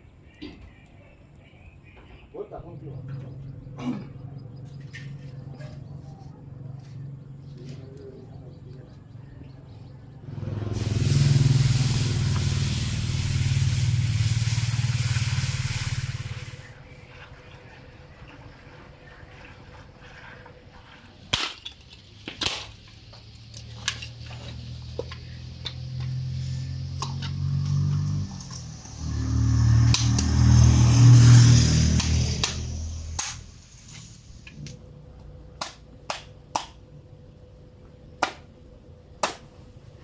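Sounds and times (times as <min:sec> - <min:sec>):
low engine drone: 0:02.5 - 0:17.6, 0:23.5 - 0:35.6
coconut shells cracking: 0:39.2 - 0:39.5.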